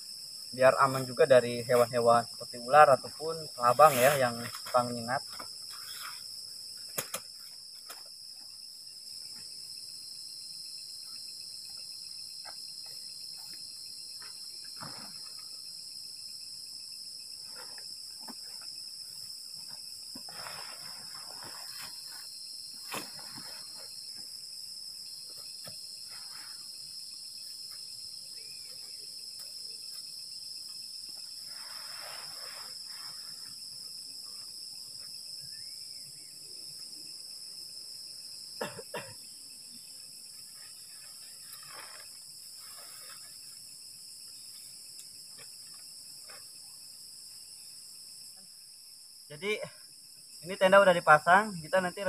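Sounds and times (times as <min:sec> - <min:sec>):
crickets and insects chirping: 0:00.0 - 0:52.0
tent fabric rustling: 0:20.2 - 0:23.9, 0:31.4 - 0:33.5, 0:40.5 - 0:43.6.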